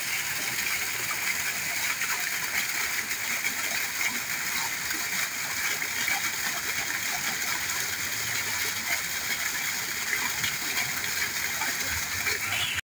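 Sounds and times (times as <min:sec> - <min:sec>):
water splashing into pond: 0:00.0 - 0:12.8.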